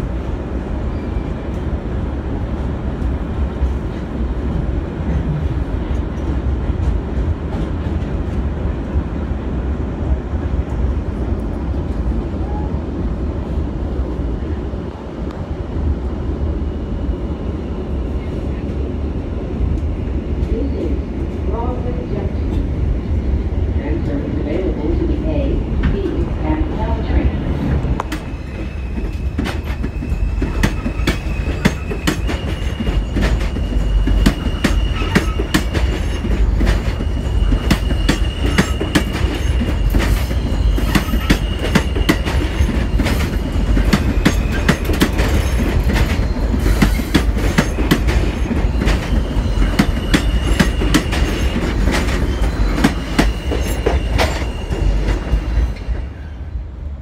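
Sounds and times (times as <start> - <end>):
train wheels clicking over rail joints: 28.0 - 56.0
high wheel squeal: 28.1 - 56.5.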